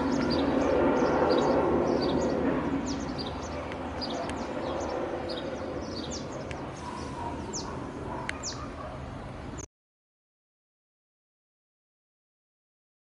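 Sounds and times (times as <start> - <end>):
distant helicopter rumble: 0.0 - 9.7
small birds chirping: 0.0 - 9.7.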